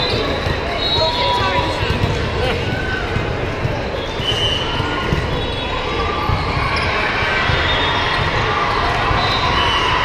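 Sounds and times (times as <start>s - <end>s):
crowd chatter: 0.0s - 10.0s
balls thudding on hardwood courts: 0.1s - 5.4s.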